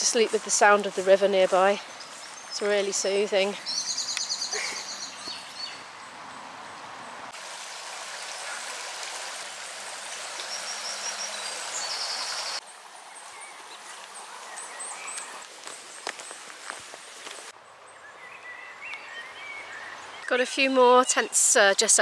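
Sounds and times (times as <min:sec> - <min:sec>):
birds singing: 0:00.0 - 0:06.4, 0:10.2 - 0:16.4, 0:17.8 - 0:22.0
shallow river over stones: 0:07.3 - 0:20.2.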